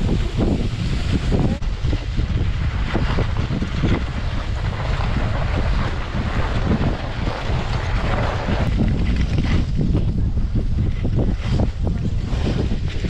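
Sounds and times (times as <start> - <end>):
skis sliding over snow: 0.0 - 13.0
wind buffeting microphone: 0.0 - 13.0.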